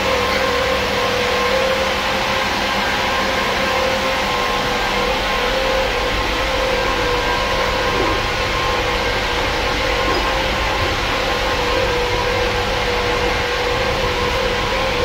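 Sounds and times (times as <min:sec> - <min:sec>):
constant tone: 0:00.0 - 0:15.0
truck engine hum: 0:00.0 - 0:15.0.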